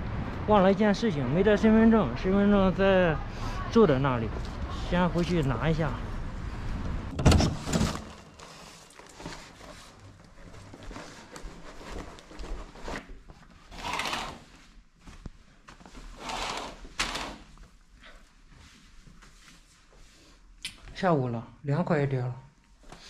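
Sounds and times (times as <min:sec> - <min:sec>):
rustling: 0:07.4 - 0:20.4.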